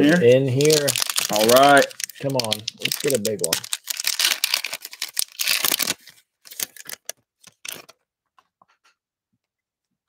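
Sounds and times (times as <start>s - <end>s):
plastic wrapper crinkling: 0.1s - 8.0s.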